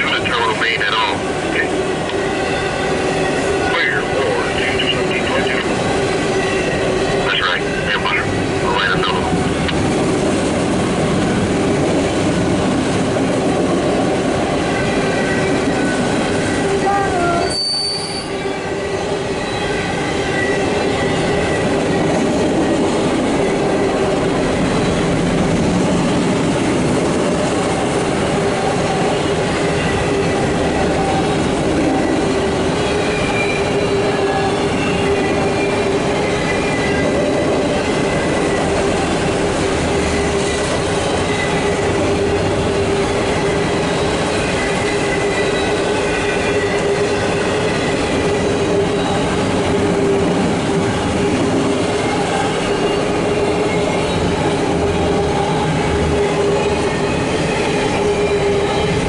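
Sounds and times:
freight cars rumbling and rattling: 0.0s - 18.1s, 20.6s - 59.0s
high-pitched wheel squeal: 17.4s - 18.5s.

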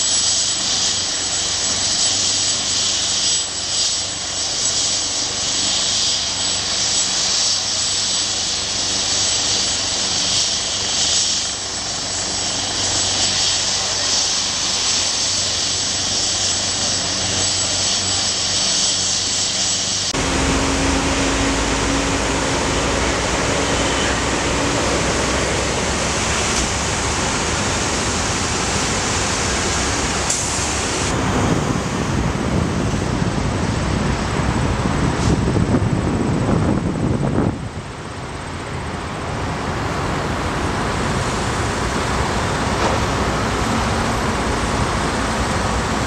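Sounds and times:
helicopter hissing whine: 0.0s - 46.0s
wind: 0.0s - 46.0s
highway traffic noise: 4.4s - 46.0s
truck and cars passing at speed: 20.1s - 32.8s, 38.6s - 46.0s.

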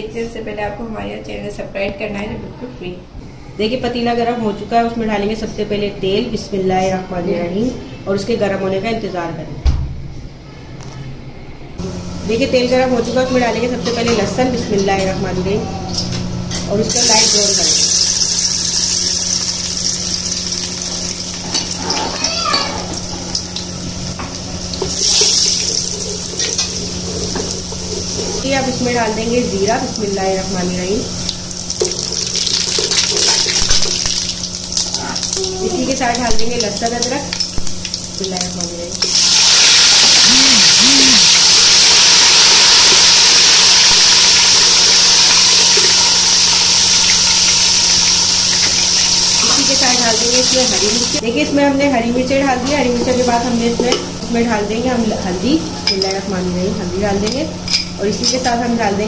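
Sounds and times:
garlic sizzling in hot oil: 16.9s - 51.2s.

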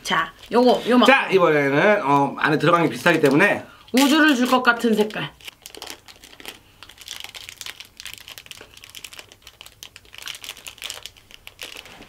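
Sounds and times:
macaron crunching while chewed: 5.4s - 12.0s.

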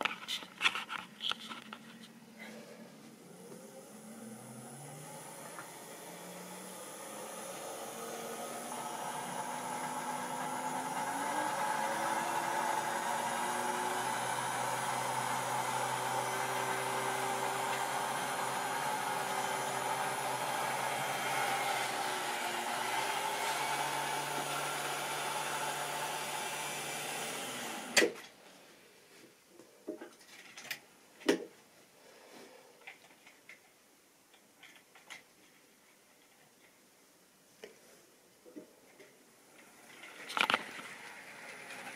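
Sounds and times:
model train motor whine: 3.2s - 28.1s, 39.6s - 41.9s.

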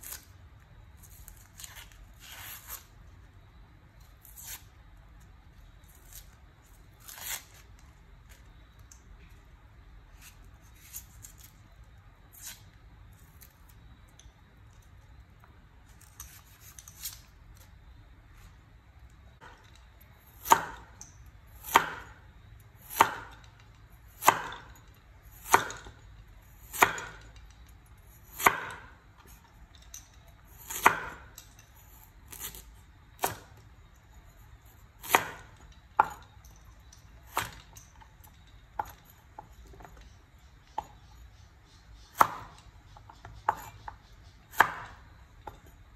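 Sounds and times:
cleaver chopping carrot on wood: 20.4s - 20.9s, 21.6s - 22.2s, 22.8s - 23.4s, 24.2s - 24.7s, 25.4s - 25.9s, 26.6s - 27.2s, 28.3s - 28.9s, 30.6s - 31.2s, 35.0s - 36.2s, 42.1s - 42.6s, 43.5s - 43.9s, 44.5s - 45.6s.

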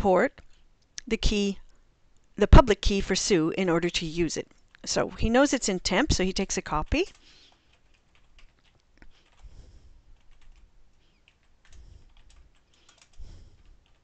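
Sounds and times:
typing on computer keyboard: 6.9s - 9.5s, 10.2s - 14.0s.

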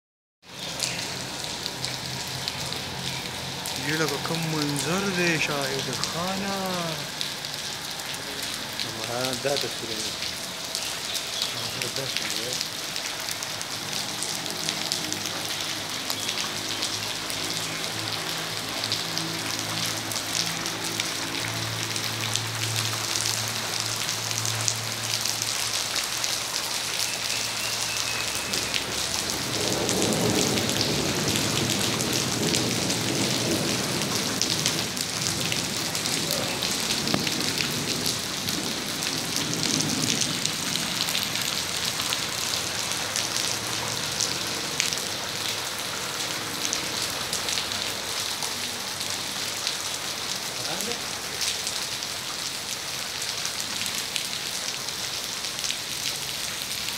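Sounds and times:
rain on paving and foliage: 0.4s - 56.9s.

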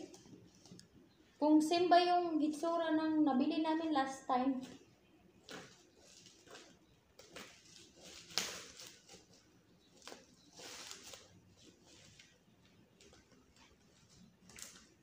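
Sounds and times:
bubble wrap crinkling: 4.6s - 15.0s.

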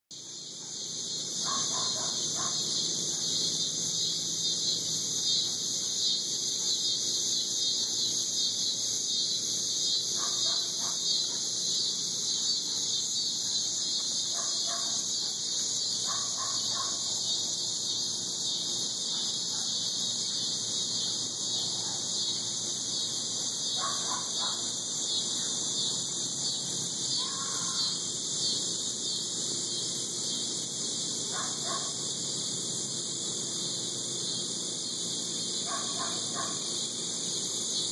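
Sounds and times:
cicadas buzzing: 0.1s - 37.9s
short fainter lower calls: 23.8s - 28.6s.

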